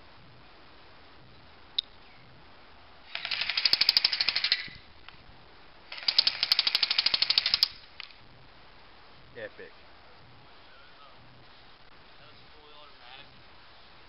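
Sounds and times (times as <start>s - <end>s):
airsoft gun automatic bursts: 3.1s - 4.8s, 5.9s - 7.8s.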